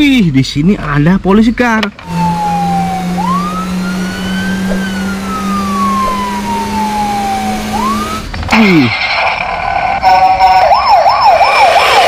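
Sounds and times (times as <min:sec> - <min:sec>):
police siren wailing: 0:02.0 - 0:08.3, 0:10.0 - 0:12.0
steady low hum: 0:02.0 - 0:08.4.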